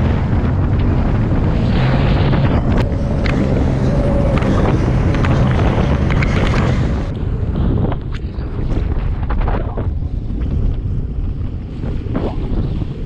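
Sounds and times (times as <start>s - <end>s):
jet ski engine hum: 0.0s - 9.0s
hull slapping waves: 0.0s - 13.0s
wind buffeting microphone: 0.0s - 13.0s.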